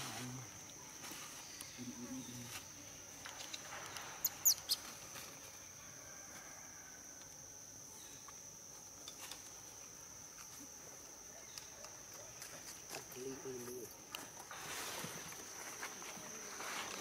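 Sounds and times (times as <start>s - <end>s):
high-pitched insect drone: 0.0s - 11.7s.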